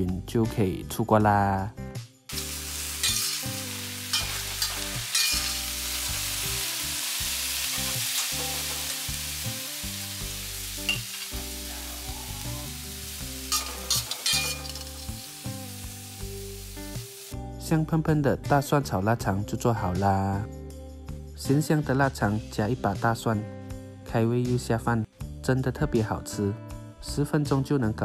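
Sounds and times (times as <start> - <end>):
food sizzling in a wok: 2.3 - 17.5
metal ladle scraping a wok: 2.4 - 6.4, 13.1 - 15.4.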